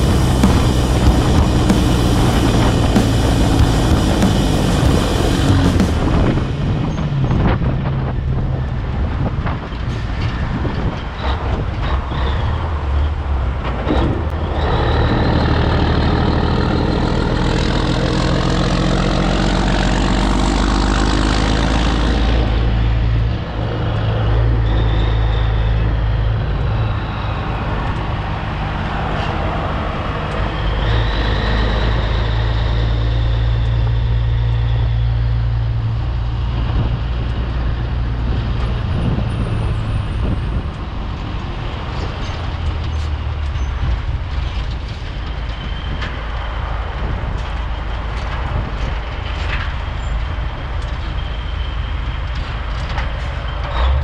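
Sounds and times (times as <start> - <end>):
truck diesel engine accelerating: 0.0 - 54.0.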